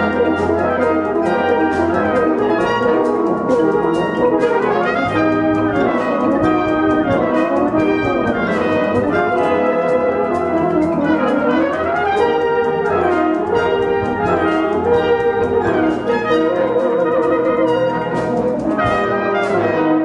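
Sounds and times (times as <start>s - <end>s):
brass band playing: 0.0s - 20.0s
euphonium solo: 0.0s - 20.0s.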